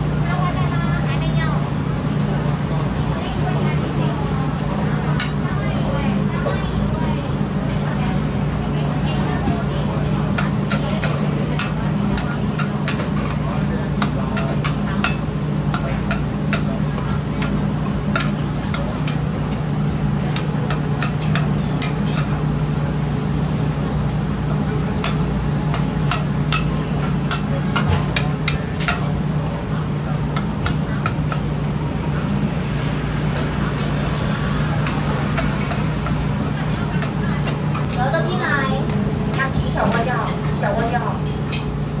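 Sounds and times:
omelette frying on griddle: 0:03.0 - 0:41.6.

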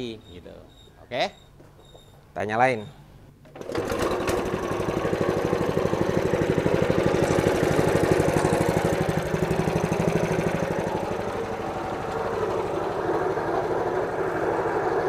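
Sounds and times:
stone grinding machine running: 0:03.6 - 0:15.0.

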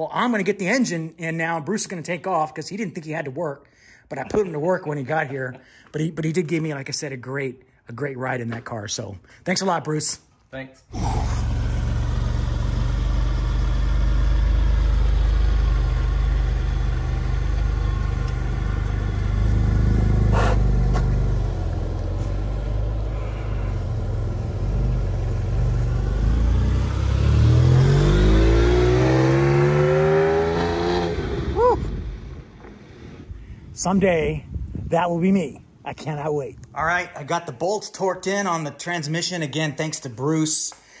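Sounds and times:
car engine running and revving: 0:11.0 - 0:31.6.

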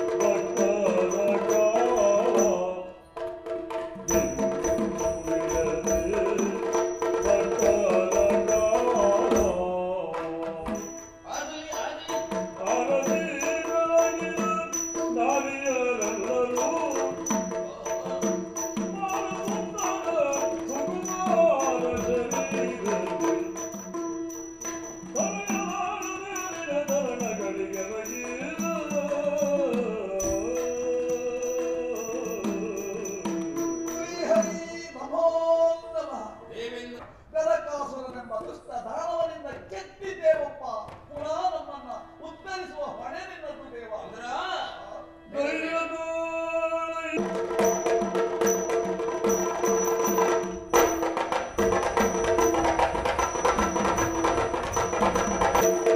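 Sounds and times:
drum strokes: 0:00.0 - 0:34.8, 0:47.2 - 0:55.9
small cymbal clashes: 0:10.7 - 0:11.3, 0:11.9 - 0:34.7, 0:47.3 - 0:55.9.

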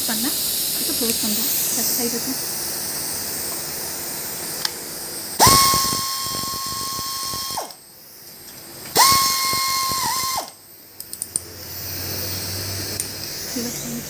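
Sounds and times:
air hiss: 0:00.0 - 0:10.8, 0:11.4 - 0:14.0
air ratchet whining: 0:05.4 - 0:07.8, 0:08.9 - 0:14.0.

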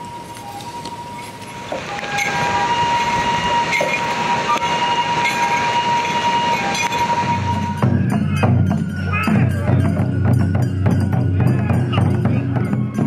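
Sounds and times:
high pipe melody: 0:00.0 - 0:13.0
surf and rain rushing: 0:00.1 - 0:07.9.

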